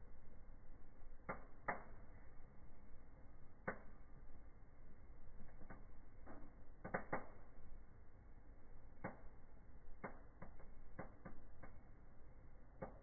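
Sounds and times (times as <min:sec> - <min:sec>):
wood crackling and popping: 0:01.1 - 0:02.3, 0:03.6 - 0:04.3, 0:05.2 - 0:07.8, 0:08.8 - 0:13.0.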